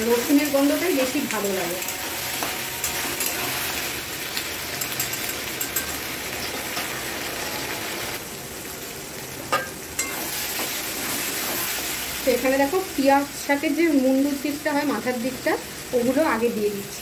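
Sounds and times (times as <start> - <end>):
vegetables sizzling in pan: 0.0 - 17.0
metal spatula scraping: 1.6 - 4.0.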